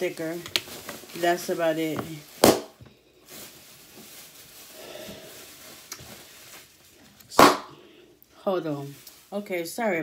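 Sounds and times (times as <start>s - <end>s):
faint rustling: 3.1s - 7.2s.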